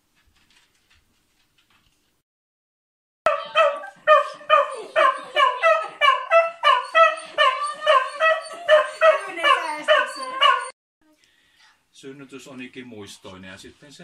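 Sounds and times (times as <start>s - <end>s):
dog barking excitedly: 3.3s - 10.7s.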